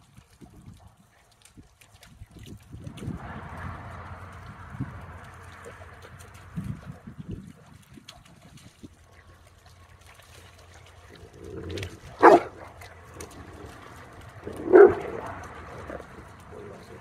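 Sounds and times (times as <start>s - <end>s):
puppies barking: 12.1s - 16.6s.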